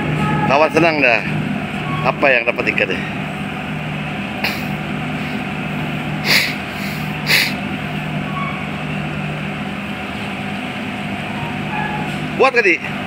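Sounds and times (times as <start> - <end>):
low engine drone: 1.0 - 13.0
short hissing bursts: 4.4 - 5.4, 6.2 - 7.6.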